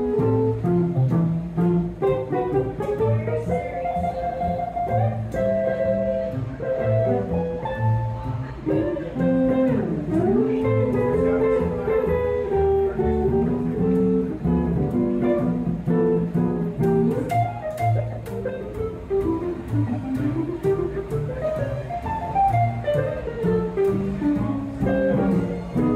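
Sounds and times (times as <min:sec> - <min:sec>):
archtop guitar comping chords: 0:00.0 - 0:25.9
sustained lead melody: 0:00.0 - 0:25.9
upright bass plucking: 0:00.0 - 0:25.9.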